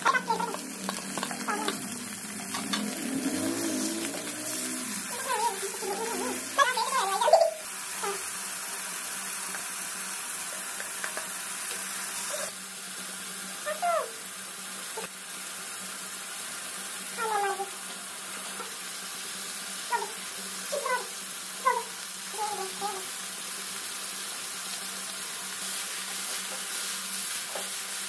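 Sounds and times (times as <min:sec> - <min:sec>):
high descending calls: 0:00.0 - 0:07.6
meat frying in oil: 0:00.0 - 0:28.0.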